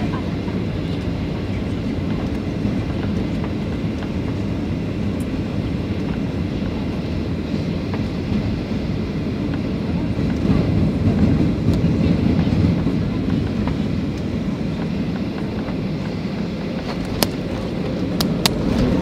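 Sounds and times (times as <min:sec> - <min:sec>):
aircraft cabin low rumble: 0:00.0 - 0:19.0.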